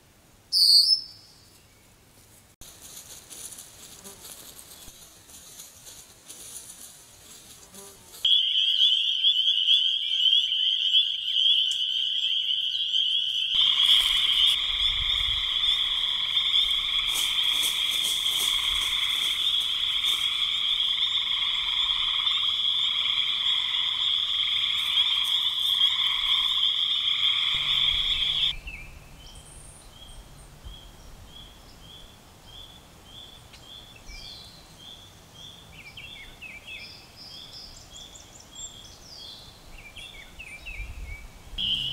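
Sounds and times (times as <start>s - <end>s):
bird chirps: 0.5s - 1.9s, 8.3s - 17.1s, 18.6s - 41.9s
low frog trilling: 8.3s - 28.5s
frogs chorus calling: 8.3s - 28.6s, 41.6s - 41.9s.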